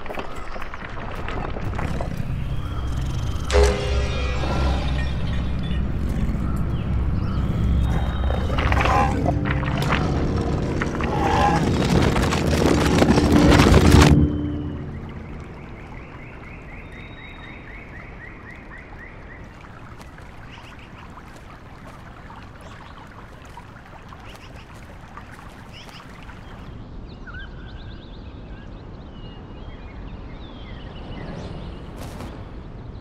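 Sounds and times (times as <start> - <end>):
low rumble: 1.4 - 16.9
birds chirping: 1.6 - 28.0
soft wash of water and wind: 15.0 - 33.0.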